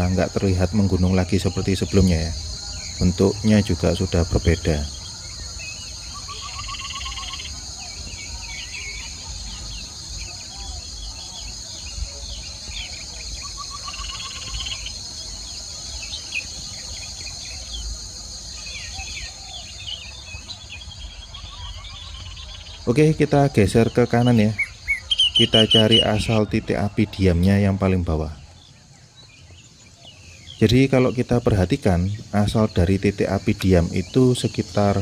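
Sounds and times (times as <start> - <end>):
birds chirping and trilling: 0.0 - 35.0
high insect buzz: 1.9 - 19.9.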